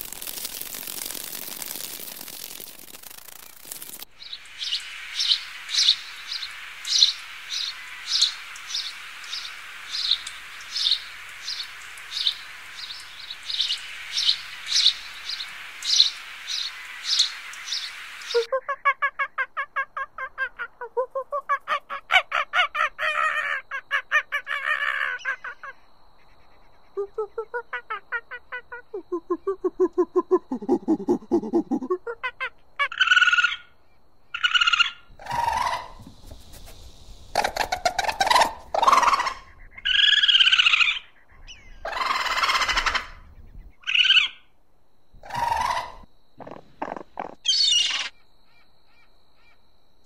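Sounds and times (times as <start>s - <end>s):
magpie calling: 21.5s - 26.8s, 37.4s - 43.2s, 43.8s - 44.4s, 46.8s - 49.0s.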